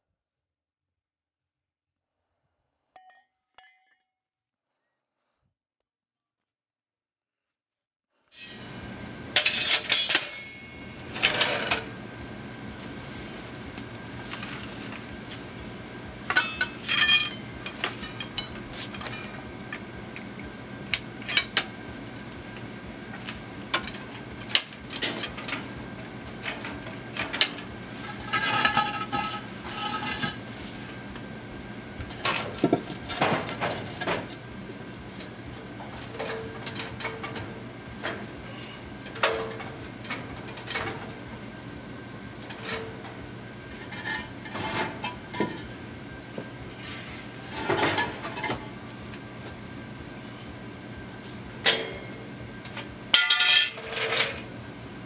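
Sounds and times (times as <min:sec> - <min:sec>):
steady low hum: 0:08.4 - 0:55.0
metal parts clanking: 0:09.4 - 0:11.8, 0:16.3 - 0:19.4, 0:23.3 - 0:25.8, 0:26.4 - 0:30.4, 0:39.0 - 0:41.1, 0:53.2 - 0:54.5.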